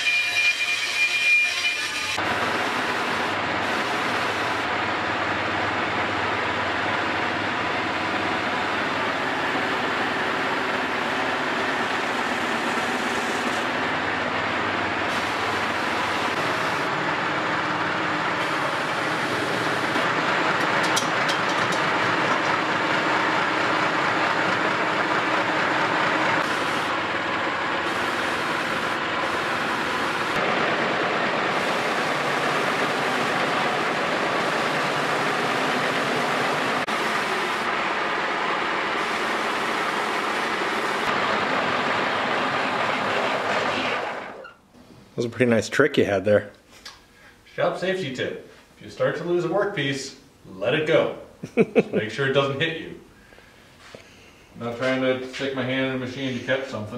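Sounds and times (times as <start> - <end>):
disc sander sanding wood: 21.8 - 44.3.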